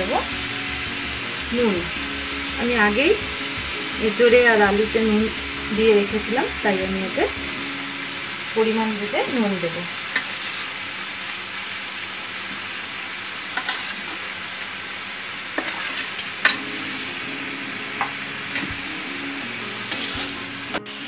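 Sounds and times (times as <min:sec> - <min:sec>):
curry sizzling in a wok: 0:00.0 - 0:21.0.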